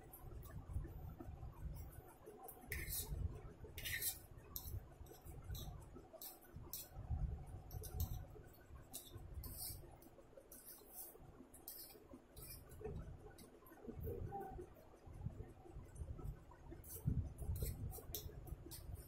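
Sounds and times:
fork on ceramic plate: 0:02.7 - 0:03.1, 0:03.8 - 0:04.8, 0:10.5 - 0:12.7.

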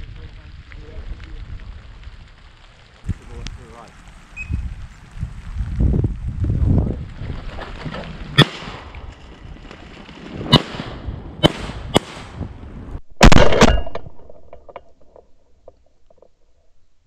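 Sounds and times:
shotguns firing: 0:08.4 - 0:08.9, 0:10.5 - 0:12.5.

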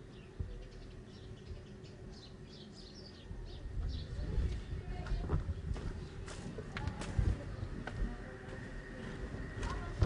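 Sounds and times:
small birds chirping: 0:00.0 - 0:10.0
microphone handling rumble: 0:03.3 - 0:08.4.

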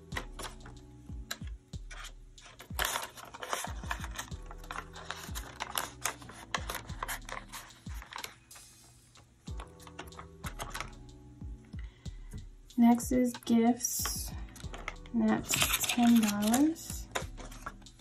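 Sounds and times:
paper rustling and crinkling: 0:01.3 - 0:08.6, 0:14.5 - 0:18.0.

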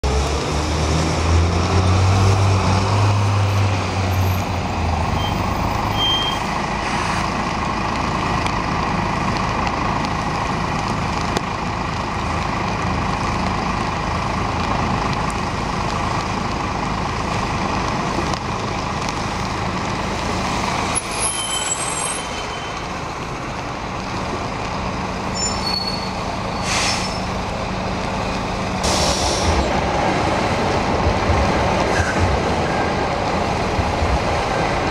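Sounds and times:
buses and lorry driving past: 0:00.0 - 0:34.9
short hissing sounds: 0:26.6 - 0:27.3, 0:28.8 - 0:29.6.

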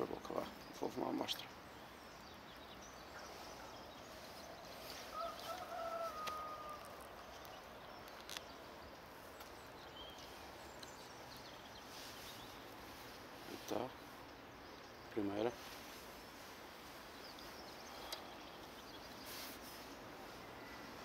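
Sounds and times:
rooster crowing: 0:05.0 - 0:07.1.

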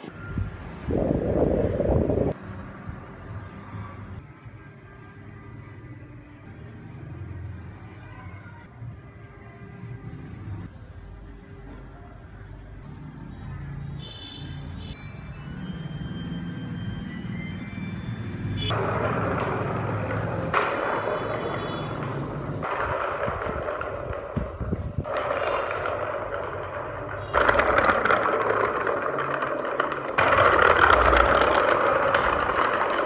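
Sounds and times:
wooden wheels rolling on hard surface: 0:18.7 - 0:33.0.

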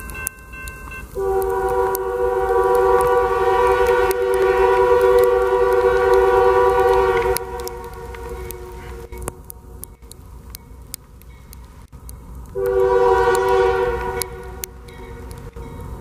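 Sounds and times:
crossing bell ringing: 0:00.0 - 0:01.2, 0:06.4 - 0:09.2, 0:09.9 - 0:11.6, 0:13.8 - 0:16.0
locomotive air horn chord: 0:01.2 - 0:09.2, 0:12.6 - 0:15.2.

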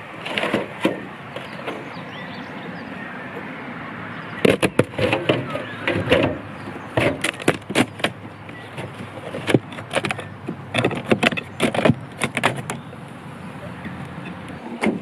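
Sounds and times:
hive tool scraping and prying: 0:00.2 - 0:01.8, 0:04.4 - 0:12.9
sharp wooden knocks and clunks: 0:00.2 - 0:01.9, 0:04.4 - 0:12.9, 0:14.2 - 0:15.0.

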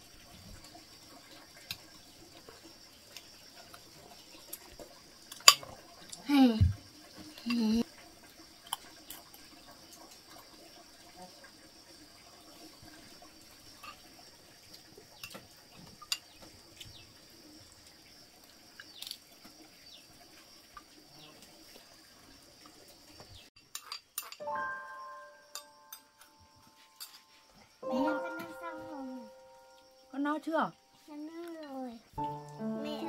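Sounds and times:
background hiss: 0:00.0 - 0:33.0
utensils clinking against bowls: 0:23.6 - 0:24.5
thin high tone: 0:24.4 - 0:31.2, 0:32.2 - 0:33.0.

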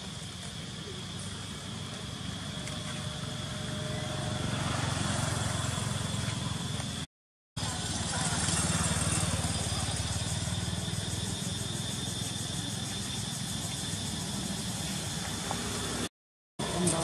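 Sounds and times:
steady outdoor hiss: 0:00.0 - 0:17.0
motorcycle engine passing: 0:02.1 - 0:13.4.

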